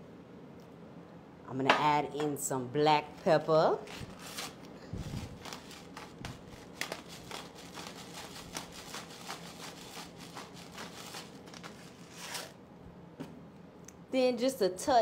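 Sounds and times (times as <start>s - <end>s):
pepper grinder crunching peppercorns: 3.8s - 12.6s.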